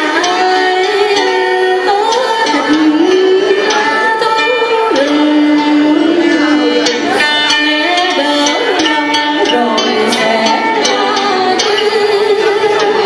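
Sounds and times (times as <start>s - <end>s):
live instrumental accompaniment: 0.0s - 13.0s
woman singing into microphone: 0.0s - 13.0s.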